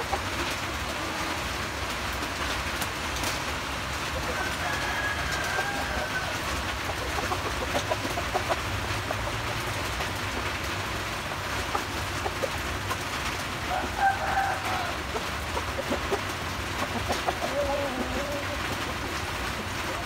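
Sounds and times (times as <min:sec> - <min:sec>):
chicken calls: 0:00.0 - 0:20.0.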